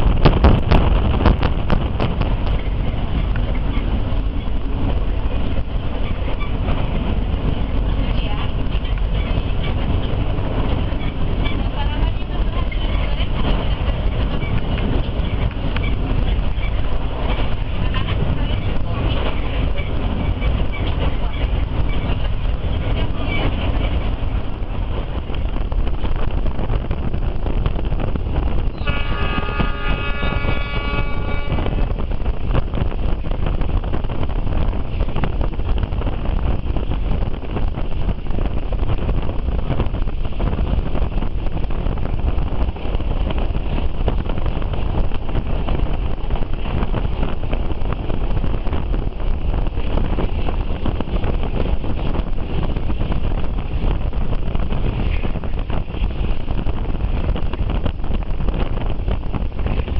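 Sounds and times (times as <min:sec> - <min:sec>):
train rolling rumble on rails: 0:00.0 - 0:59.9
wind buffeting microphone: 0:00.0 - 0:59.9
locomotive horn: 0:28.8 - 0:32.1.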